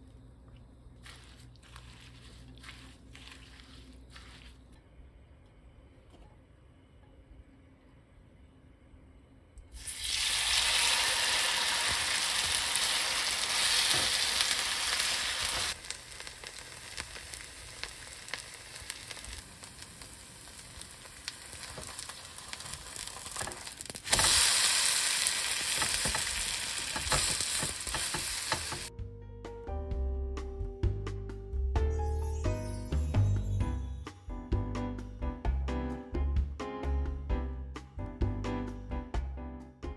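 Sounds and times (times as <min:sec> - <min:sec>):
pancake batter sizzling in oil: 0:09.8 - 0:28.9
music: 0:28.9 - 0:39.9.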